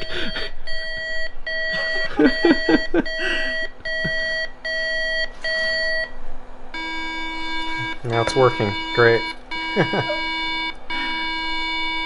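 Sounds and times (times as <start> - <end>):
electronic beeper beeping: 6.8 - 12.0.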